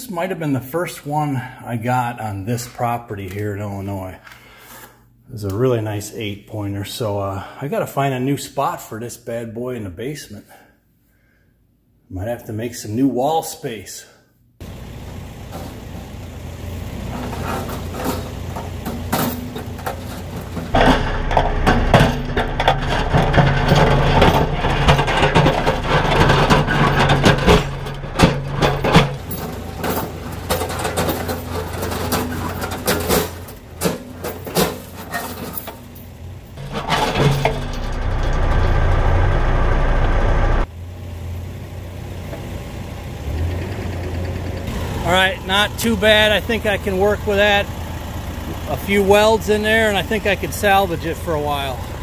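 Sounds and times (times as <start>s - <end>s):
diesel engine running: 14.6s - 52.0s
metal clanks and scrapes: 17.0s - 39.3s.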